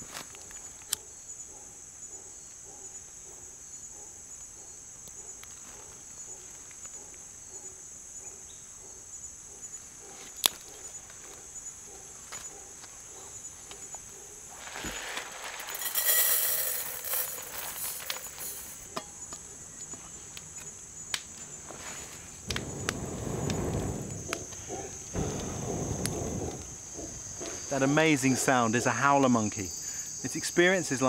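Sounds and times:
insects chirring: 0.0s - 31.0s
hissing crackling noise: 20.2s - 29.3s.

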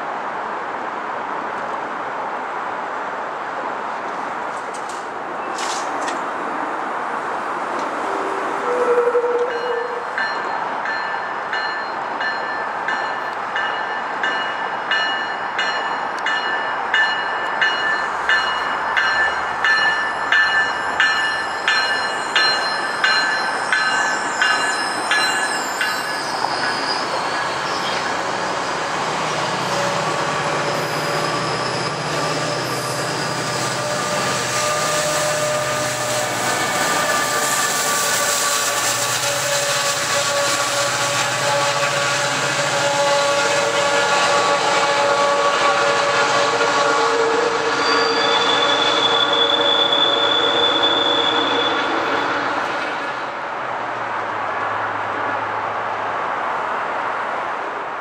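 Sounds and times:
wheels clacking over rail joints: 4.4s - 6.4s
high-pitched wheel squeal: 8.6s - 10.2s, 22.2s - 28.9s, 29.6s - 45.7s, 46.5s - 52.3s.

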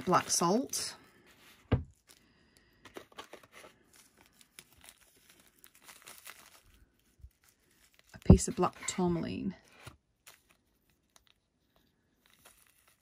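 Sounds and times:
dull thump: 1.7s - 1.9s
plastic bag crinkling: 2.9s - 9.1s, 9.8s - 13.0s.

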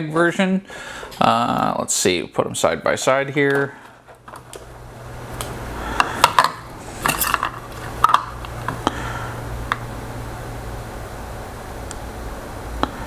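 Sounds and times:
low hum: 4.1s - 13.0s.

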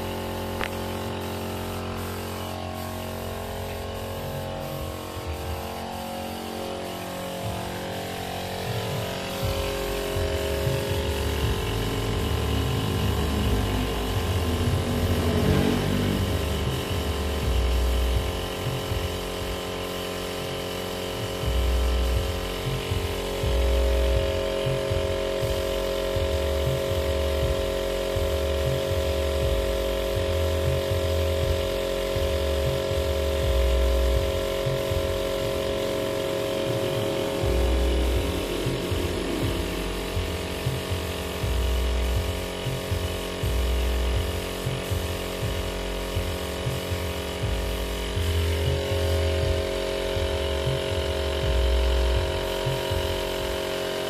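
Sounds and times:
machine motor humming: 0.0s - 54.0s
uneven low rumbling: 8.7s - 17.8s, 36.3s - 41.9s.

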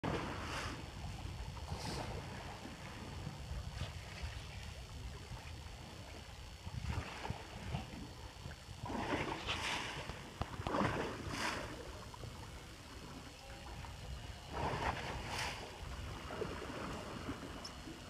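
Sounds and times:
wind rumble on microphone: 0.0s - 18.0s
water splashing against boat hull: 8.8s - 12.4s.

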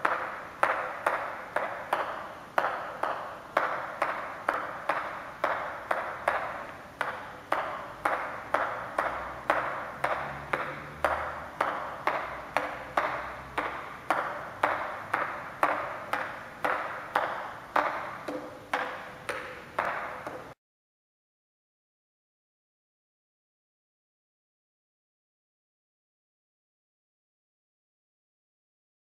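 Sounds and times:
table tennis ball bouncing on paddle: 0.0s - 20.6s.

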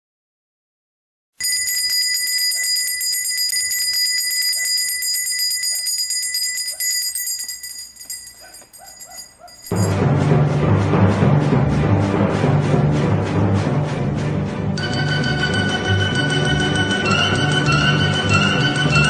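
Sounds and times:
high ringing tones: 1.4s - 10.0s
bells jingling: 1.4s - 10.1s, 14.8s - 19.0s.

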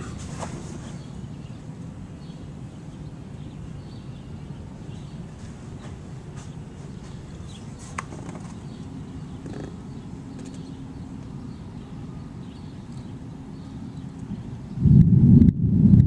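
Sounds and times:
faint hum: 0.0s - 16.0s
thunderstorm rumble: 14.3s - 16.0s.

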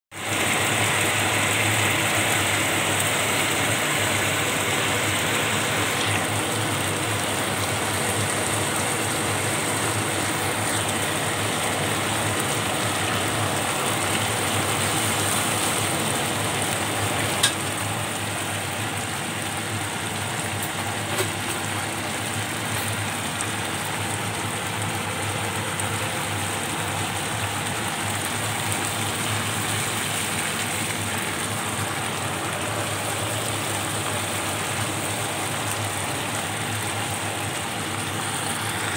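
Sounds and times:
food bubbling and sizzling in pan: 0.1s - 38.9s.

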